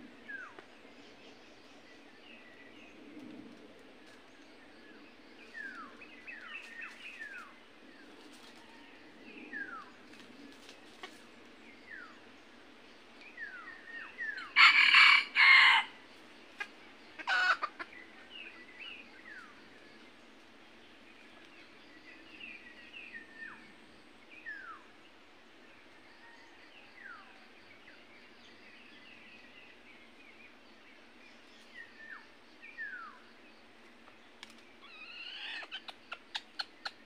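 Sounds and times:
rooster crowing: 14.4 - 16.0
birds chirping: 25.8 - 37.0.

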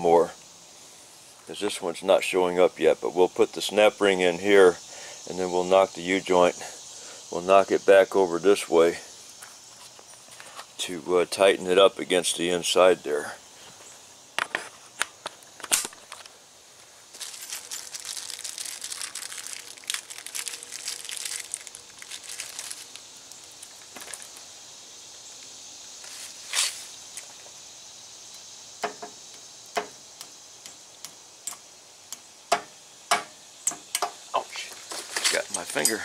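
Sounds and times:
plastic bag crinkling: 17.1 - 24.4.

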